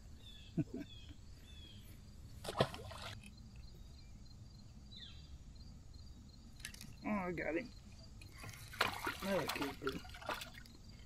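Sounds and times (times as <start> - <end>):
fish splashing into water: 2.4 - 3.2, 8.6 - 10.7
faint high bird chirps: 3.3 - 8.8.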